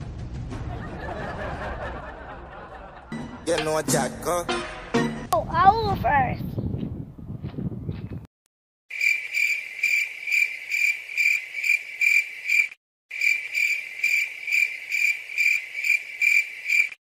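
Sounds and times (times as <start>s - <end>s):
cricket chirping: 8.9s - 17.0s.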